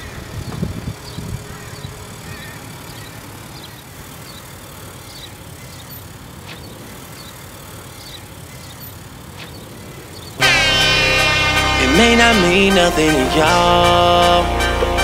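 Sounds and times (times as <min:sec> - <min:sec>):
minivan rumbling: 0:10.3 - 0:15.0.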